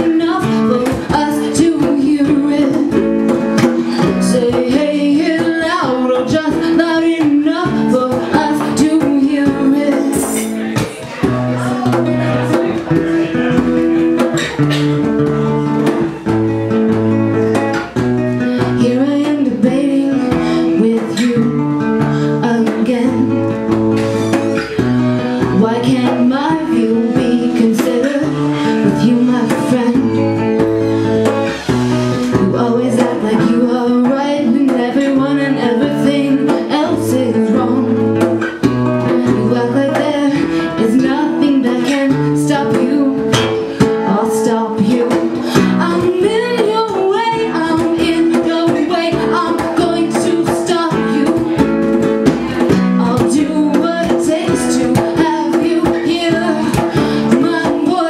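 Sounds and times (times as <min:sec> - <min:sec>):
woman singing: 0:00.0 - 0:13.6, 0:15.0 - 0:58.0
acoustic guitar: 0:00.0 - 0:58.0
hand drum: 0:00.0 - 0:58.0.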